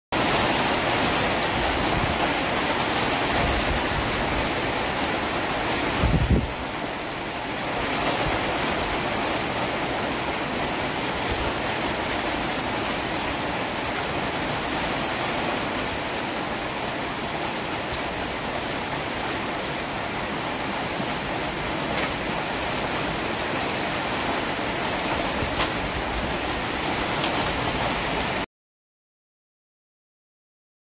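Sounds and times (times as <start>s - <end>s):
wind rushing through leaves: 0.1s - 28.4s
wind buffeting microphone: 1.4s - 4.9s, 5.8s - 6.7s.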